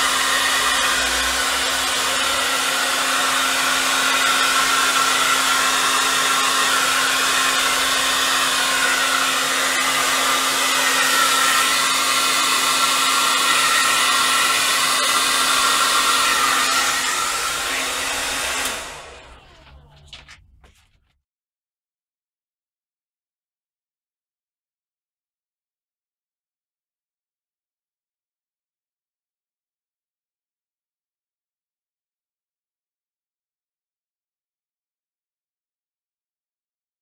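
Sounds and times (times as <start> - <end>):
heat gun blowing: 0.0 - 19.6.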